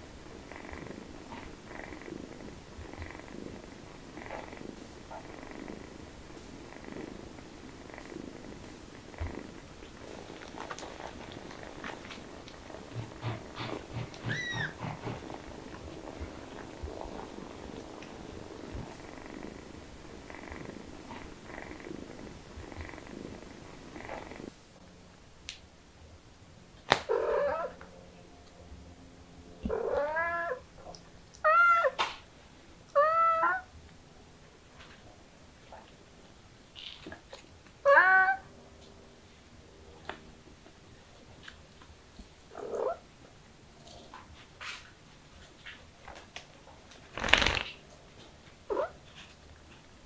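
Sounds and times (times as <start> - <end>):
cat purring: 0.2 - 24.6
kitten mewing: 13.0 - 15.2.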